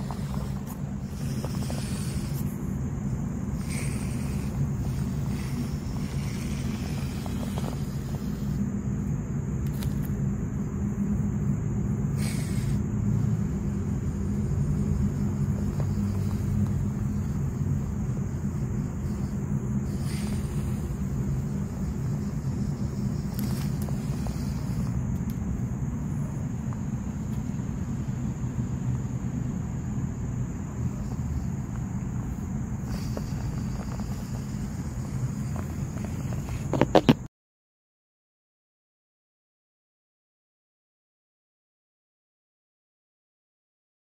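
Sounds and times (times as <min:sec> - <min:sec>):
small electric motor humming: 0:00.0 - 0:28.3, 0:30.2 - 0:37.2.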